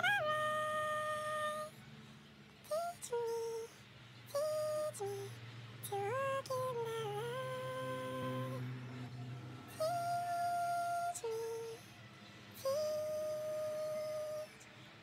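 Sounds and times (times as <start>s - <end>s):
woman humming a lullaby: 12.6s - 14.6s.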